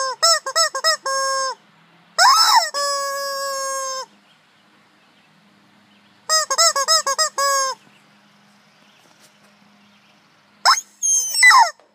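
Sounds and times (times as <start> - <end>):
rubber chicken squawking: 0.0 - 1.6, 2.2 - 4.1, 6.3 - 7.8, 10.7 - 11.9.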